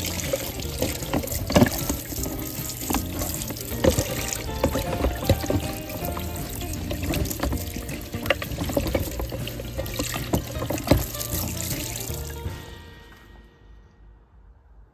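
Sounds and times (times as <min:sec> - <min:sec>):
water splashing into plastic bucket: 0:00.0 - 0:12.8
background music: 0:00.0 - 0:14.2.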